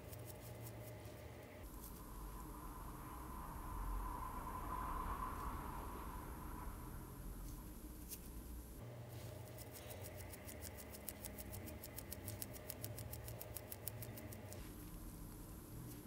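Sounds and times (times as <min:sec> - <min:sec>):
fast watch ticking: 0:09.5 - 0:14.6.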